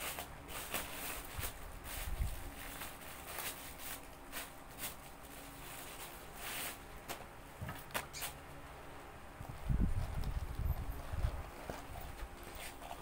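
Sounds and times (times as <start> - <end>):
plastic packaging crinkling: 0.0 - 7.2.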